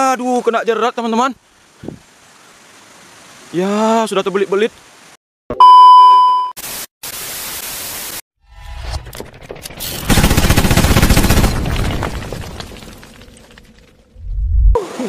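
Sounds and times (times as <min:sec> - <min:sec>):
test-pattern beep: 0:05.5 - 0:06.6.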